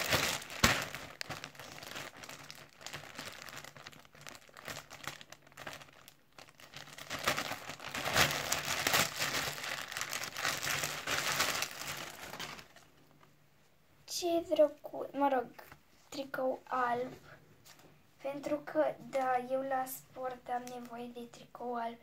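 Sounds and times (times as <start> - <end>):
plastic bag crinkling: 0.0 - 13.3.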